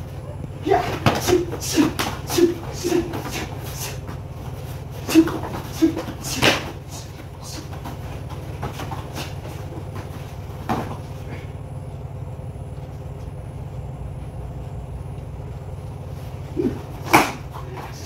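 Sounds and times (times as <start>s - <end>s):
body thud on foam mats: 7.7s - 11.1s.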